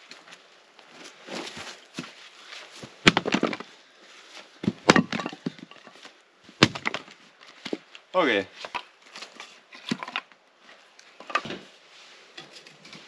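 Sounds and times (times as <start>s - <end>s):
axe chopping wood: 3.0s - 3.6s, 4.6s - 5.6s, 6.6s - 7.1s
split wood clattering: 3.0s - 3.7s, 4.6s - 6.0s, 6.6s - 7.9s, 8.6s - 10.4s, 11.2s - 11.6s.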